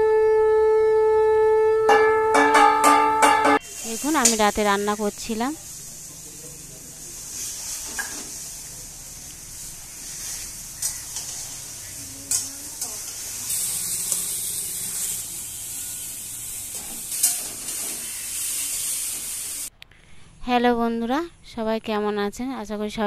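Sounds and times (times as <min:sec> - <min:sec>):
food sizzling in a wok: 0:03.6 - 0:19.7
spatula stirring and scraping: 0:09.8 - 0:15.1.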